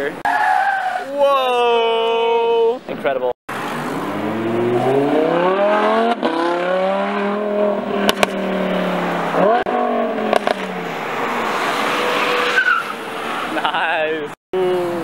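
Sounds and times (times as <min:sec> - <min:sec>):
sports car engine accelerating: 0:03.6 - 0:10.9
exhaust pops: 0:08.0 - 0:08.5, 0:10.2 - 0:10.7.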